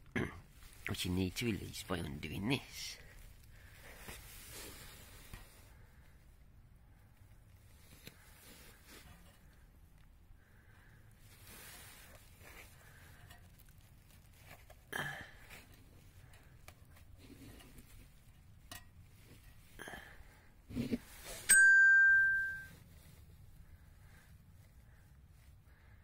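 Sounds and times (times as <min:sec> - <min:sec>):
faint clicks and rustles: 0:00.4 - 0:21.5
bell-like ding: 0:21.5 - 0:22.7.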